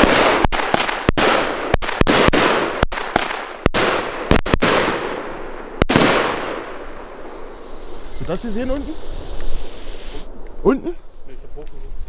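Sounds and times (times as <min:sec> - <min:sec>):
firework bangs echoing: 0:00.0 - 0:07.7.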